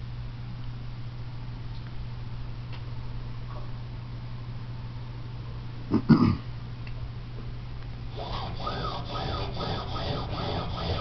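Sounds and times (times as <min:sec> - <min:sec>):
steady low hum: 0:00.0 - 0:11.0
rhythmic rubbing or scraping: 0:08.1 - 0:11.0.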